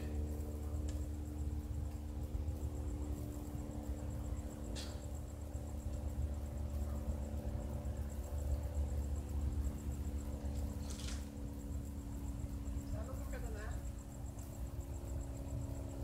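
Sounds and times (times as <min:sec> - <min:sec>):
crickets chirping: 0:00.0 - 0:16.0
low steady drone: 0:00.0 - 0:16.0.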